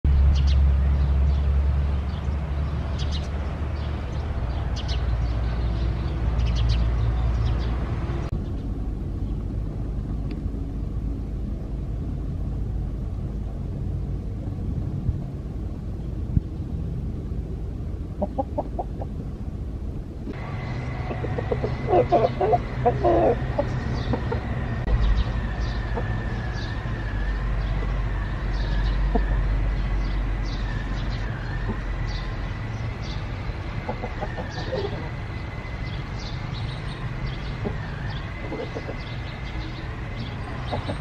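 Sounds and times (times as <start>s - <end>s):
low mechanical hum: 0.1s - 41.0s
chickens clucking: 18.2s - 19.1s, 20.4s - 24.6s, 33.8s - 35.2s, 38.4s - 39.2s, 40.6s - 41.0s.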